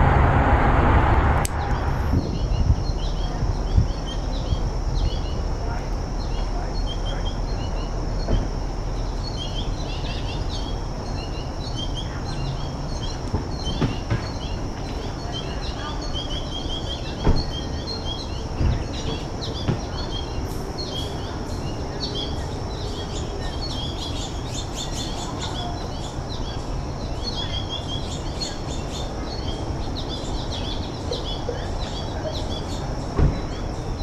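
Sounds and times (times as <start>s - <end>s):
low rumble: 0.0s - 13.2s
finches chirping: 1.6s - 34.0s.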